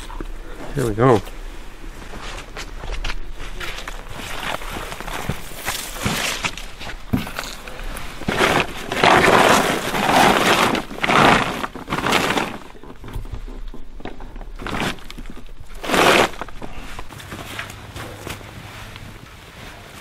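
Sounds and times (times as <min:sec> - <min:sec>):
plastic tarp crinkling: 0:03.4 - 0:13.0, 0:14.5 - 0:20.0.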